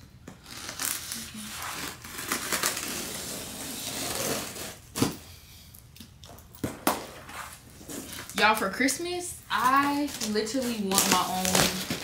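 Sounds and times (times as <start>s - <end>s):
blade slitting packing tape: 0.4s - 5.2s, 10.1s - 12.0s.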